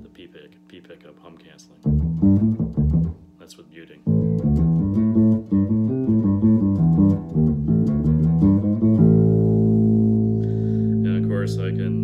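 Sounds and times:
electric bass played fingerstyle: 1.8 - 3.3, 4.0 - 12.0.

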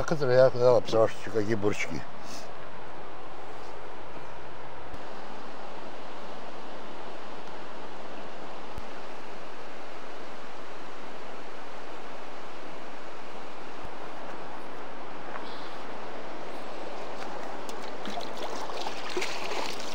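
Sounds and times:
river water rushing: 16.0 - 19.9.

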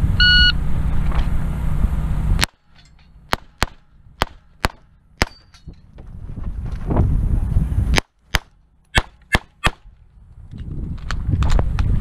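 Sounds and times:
electronic shot timer beep: 0.2 - 0.6
pistol shots: 3.3 - 5.5, 7.9 - 9.9.

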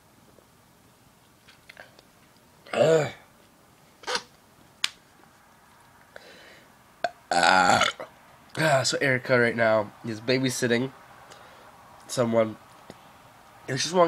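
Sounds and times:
man burping: 2.7 - 3.2, 7.0 - 8.2.

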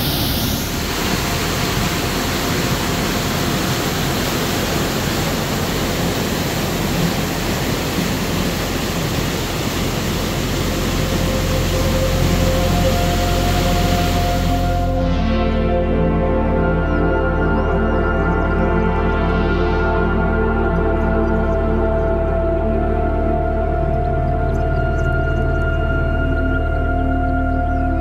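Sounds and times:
waterfall rushing into pool: 0.0 - 15.0.

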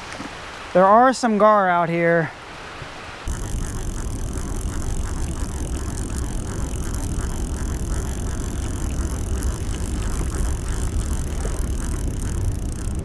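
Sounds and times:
fishing reel ticking: 3.3 - 13.0
low rumble: 3.3 - 13.0.

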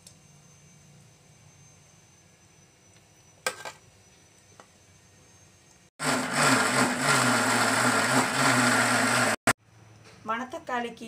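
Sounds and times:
mixer grinder whirring: 6.0 - 9.6.

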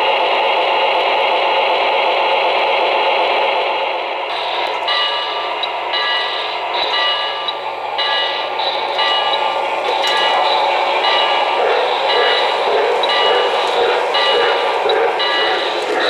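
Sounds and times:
model trains rolling on track: 0.0 - 16.0.

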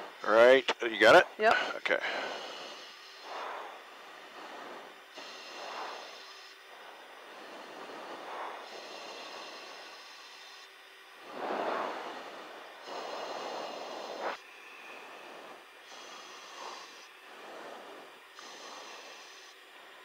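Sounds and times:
intercom hiss: 0.0 - 19.8
thin electrical whine: 0.0 - 20.0
headset microphone noise rushes: 3.2 - 9.9, 11.2 - 19.0.

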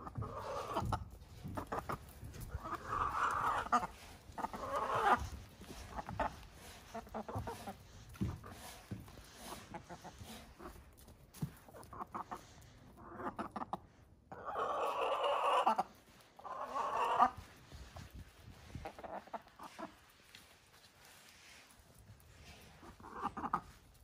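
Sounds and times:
hens drawn-out loud calls: 0.0 - 1.0, 1.6 - 7.8, 14.3 - 17.5
hens clucking: 0.0 - 20.5, 21.9 - 24.0.

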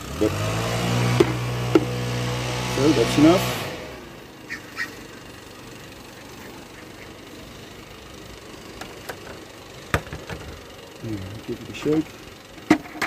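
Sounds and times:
honeybees humming: 4.2 - 11.5.

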